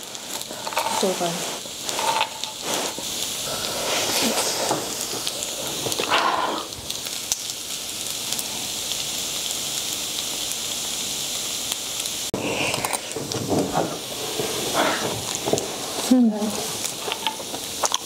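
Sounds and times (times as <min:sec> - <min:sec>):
rice sizzling in hot pot: 0:00.0 - 0:18.0
spoon scraping pot: 0:00.6 - 0:01.2, 0:01.9 - 0:03.1.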